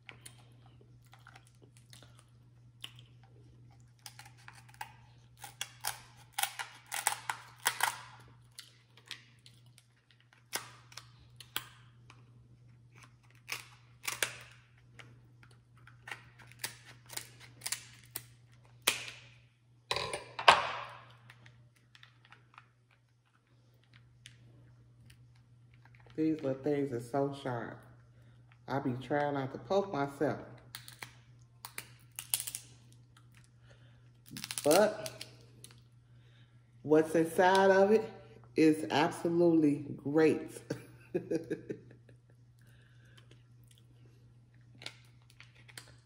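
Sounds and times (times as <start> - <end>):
crab shells cracking: 1.0 - 19.4, 30.7 - 33.6, 34.2 - 35.8, 44.6 - 46.0.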